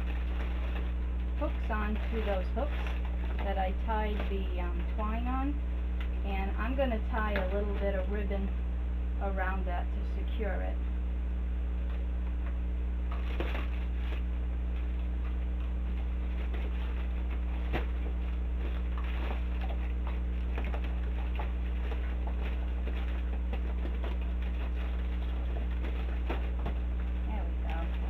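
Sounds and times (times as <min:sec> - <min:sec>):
paper rustling and crinkling: 0:00.0 - 0:04.9, 0:13.1 - 0:28.0
low electrical hum: 0:00.0 - 0:28.0.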